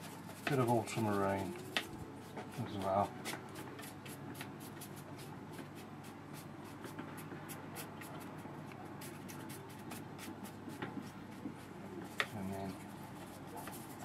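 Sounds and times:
brush sweeping on wet paper: 0:06.0 - 0:14.0.

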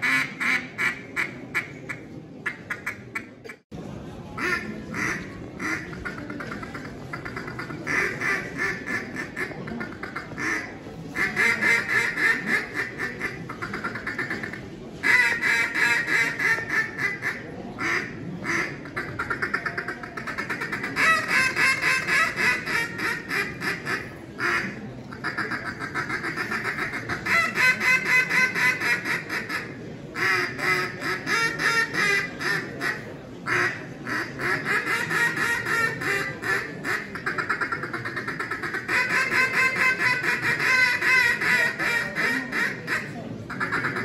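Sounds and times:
duck call quacking: 0:00.0 - 0:03.6, 0:04.4 - 0:44.0.

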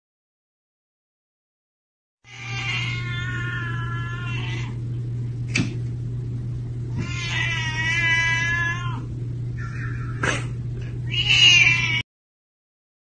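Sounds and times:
cat meowing: 0:02.2 - 0:04.8, 0:06.9 - 0:10.2, 0:11.0 - 0:12.0.

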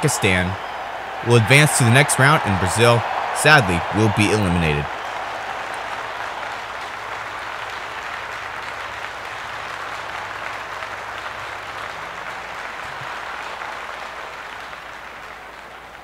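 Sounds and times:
crowd applause: 0:00.0 - 0:16.0.

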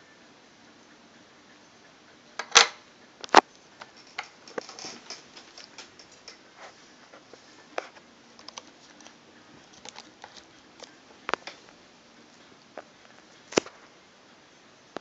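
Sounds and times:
plastic clicks and scrapes: 0:02.4 - 0:11.7.

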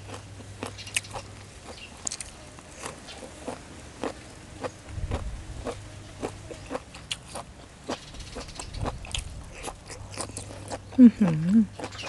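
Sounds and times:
wet crunchy chewing: 0:00.0 - 0:12.0.

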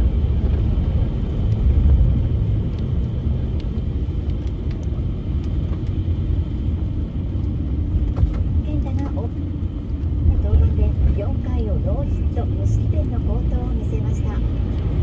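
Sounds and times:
car interior road rumble: 0:00.0 - 0:15.0.

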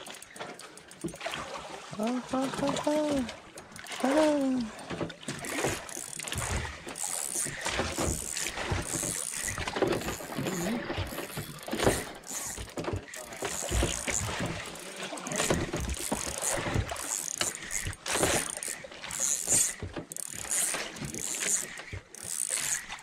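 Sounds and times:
water splashing against boat hull: 0:00.0 - 0:23.0
wooden boat knocking: 0:07.8 - 0:14.6.

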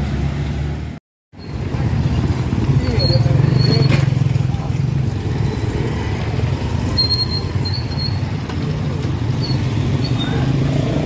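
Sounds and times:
small motorcycle engines passing: 0:01.4 - 0:11.0
short high-pitched squeaks: 0:02.9 - 0:04.1, 0:06.9 - 0:08.4.

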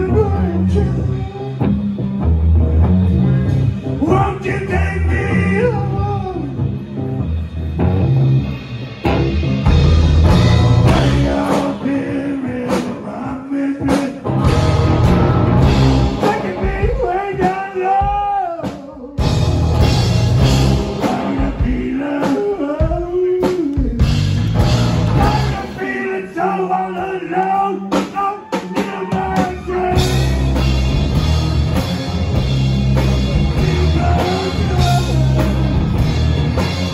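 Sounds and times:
man singing: 0:00.0 - 0:01.6, 0:04.0 - 0:06.6, 0:10.8 - 0:19.4, 0:20.8 - 0:24.2, 0:25.1 - 0:30.8, 0:33.3 - 0:35.7
guitars and bass: 0:00.0 - 0:36.9
steady low beat: 0:19.2 - 0:22.1.

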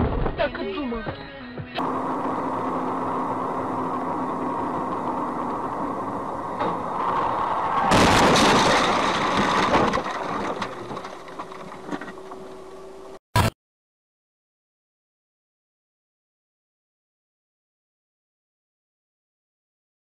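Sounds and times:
car road and engine noise: 0:01.8 - 0:13.5
loud rushing crashing noise: 0:06.5 - 0:10.0.

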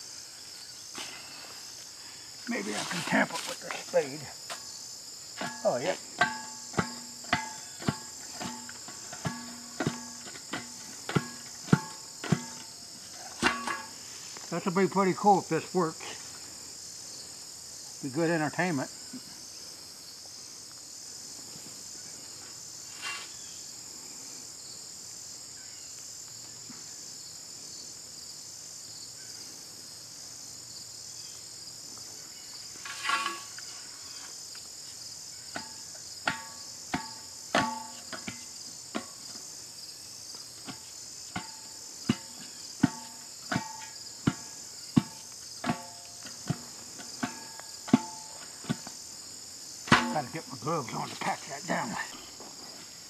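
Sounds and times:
crickets chirping: 0:00.0 - 0:53.0
spade knocking with metallic ring: 0:05.4 - 0:12.8, 0:13.4 - 0:14.0, 0:35.5 - 0:39.2, 0:40.6 - 0:48.9, 0:49.9 - 0:50.4.

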